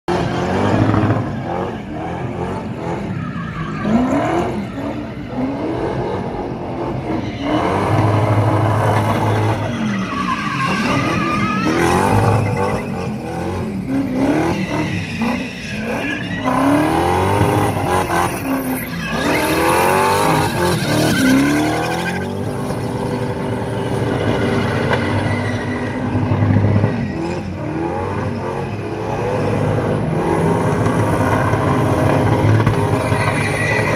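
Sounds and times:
car engine revving: 0:00.1 - 0:33.9
tyres squealing on tarmac: 0:02.7 - 0:05.9, 0:06.9 - 0:28.9, 0:31.4 - 0:33.9.

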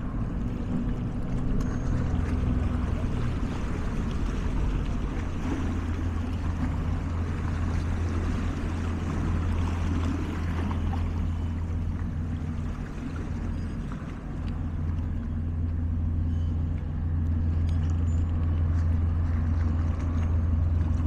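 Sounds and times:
low boat engine hum: 0:00.0 - 0:21.0.

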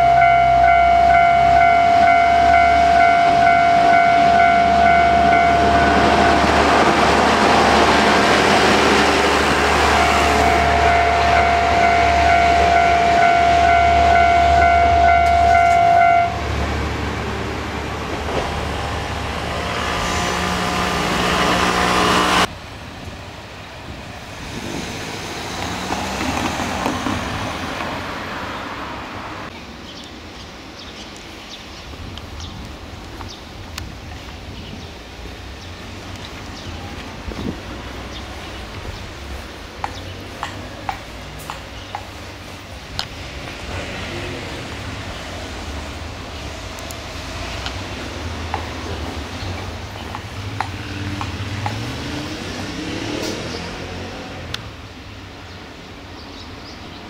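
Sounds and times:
level-crossing alarm tone: 0:00.0 - 0:06.9, 0:09.6 - 0:16.4
diesel railcar engine hum: 0:00.0 - 0:57.0
outdoor ambience: 0:00.0 - 0:57.0.

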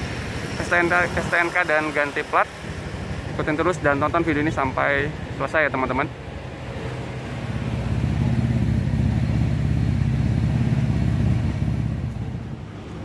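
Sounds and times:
vehicle engine passing by: 0:06.6 - 0:13.0.

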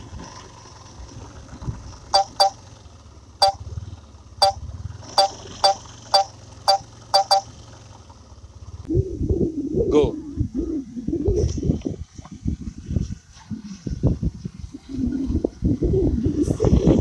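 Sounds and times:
short sharp beeps: 0:02.2 - 0:02.6, 0:05.2 - 0:07.5.

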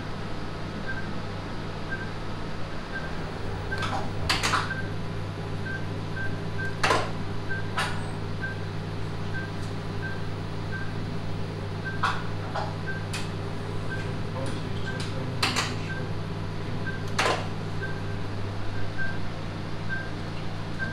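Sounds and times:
low equipment hum: 0:00.0 - 0:20.9
patient monitor beeping: 0:02.9 - 0:05.0, 0:05.6 - 0:06.8, 0:09.3 - 0:11.0, 0:11.8 - 0:12.2, 0:12.8 - 0:13.1, 0:13.8 - 0:16.2, 0:16.8 - 0:19.2, 0:19.9 - 0:20.2.

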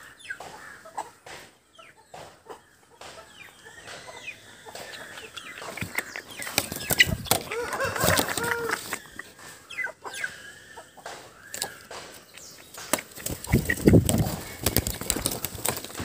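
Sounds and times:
chickens clucking: 0:00.0 - 0:16.0.

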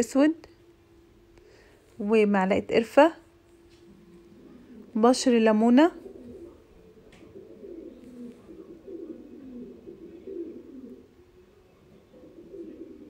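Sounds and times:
pigeon cooing: 0:03.6 - 0:13.0.

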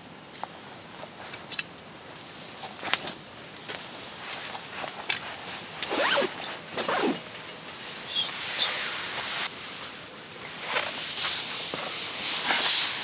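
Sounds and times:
rustling in tent: 0:02.4 - 0:13.0
tent zipper pulled: 0:05.9 - 0:07.2.

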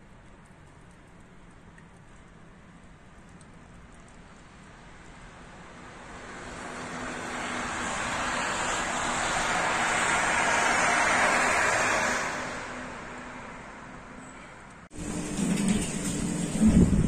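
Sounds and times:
bus passing on wet road: 0:04.2 - 0:14.2, 0:14.9 - 0:17.0.

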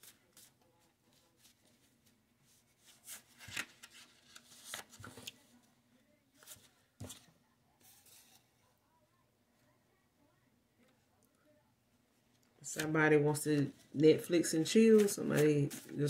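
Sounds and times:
cards rustling and clicking: 0:02.9 - 0:05.4, 0:14.8 - 0:16.0.

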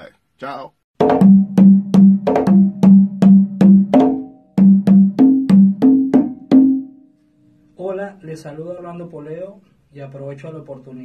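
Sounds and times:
conga drums played by hand: 0:01.0 - 0:07.0.

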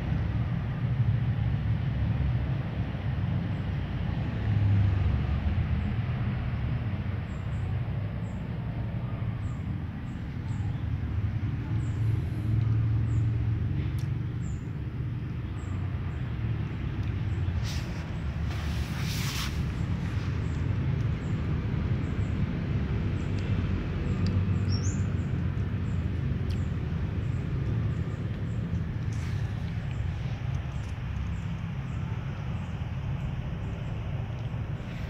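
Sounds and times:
rustling bursts: 0:17.6 - 0:20.4.

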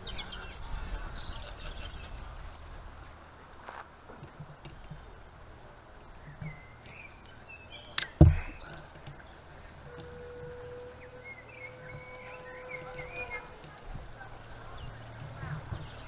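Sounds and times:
small birds chirping: 0:00.0 - 0:16.0
faint steady tone: 0:04.6 - 0:16.0
sharp knock: 0:08.0 - 0:08.6
heavy low thump: 0:08.0 - 0:08.8.

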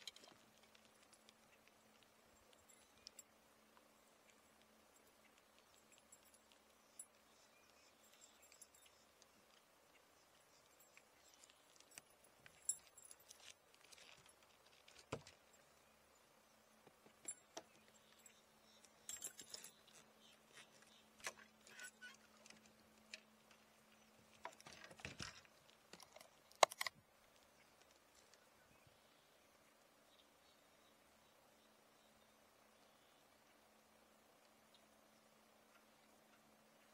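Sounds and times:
small clicks and rattles: 0:00.0 - 0:09.7, 0:10.3 - 0:15.7, 0:17.1 - 0:28.4
faint low hum: 0:00.0 - 0:36.9.

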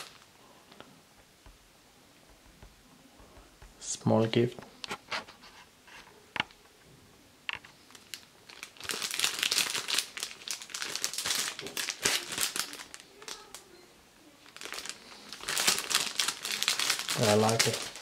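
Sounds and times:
plastic bag crinkling: 0:00.0 - 0:00.3, 0:07.8 - 0:13.7, 0:14.4 - 0:18.0.

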